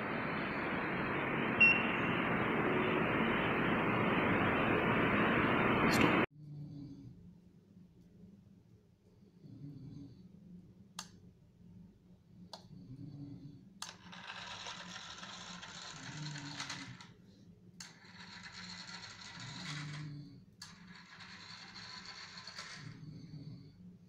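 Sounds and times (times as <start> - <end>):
model train motor whirring: 13.9 - 17.1, 17.8 - 20.0, 20.6 - 23.0.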